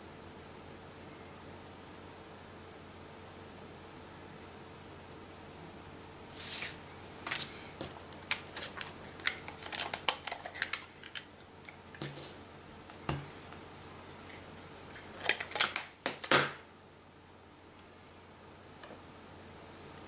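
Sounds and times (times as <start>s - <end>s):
plastic craft supplies clicking: 8.1s - 11.3s.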